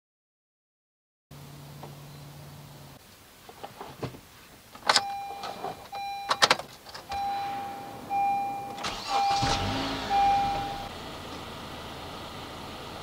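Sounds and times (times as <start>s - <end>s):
ignition key clicks: 4.8s - 7.3s, 8.3s - 9.7s
car warning chime beeps: 5.0s - 10.9s.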